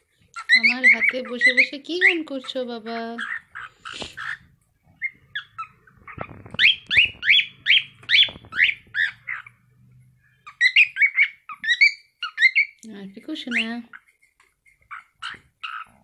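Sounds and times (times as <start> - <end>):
cockatiel whistling and chirping: 0.4 - 2.2, 3.2 - 9.6, 10.4 - 12.8, 14.8 - 16.0.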